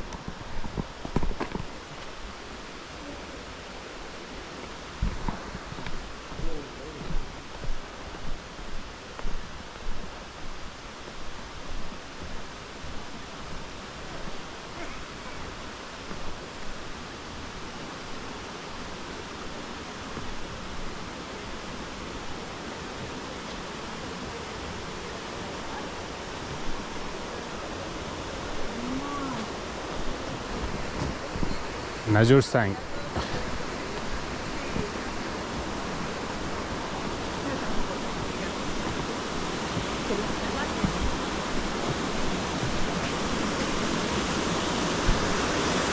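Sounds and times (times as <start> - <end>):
footsteps on a trail: 0.0 - 2.4, 4.4 - 17.0, 32.9 - 45.8
steady rushing hiss: 0.0 - 45.9.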